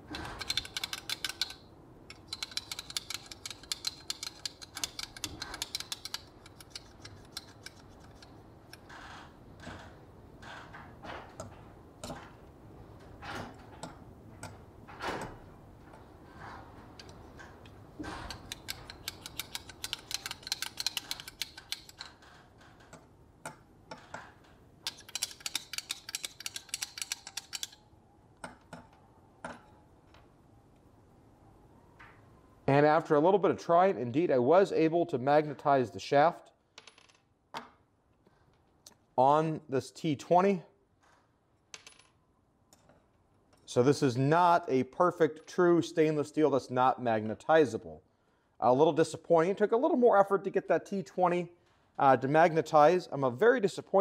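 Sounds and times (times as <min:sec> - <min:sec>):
screwdriver rattling in plastic block: 0:00.1 - 0:08.4, 0:18.3 - 0:22.2, 0:24.9 - 0:27.8.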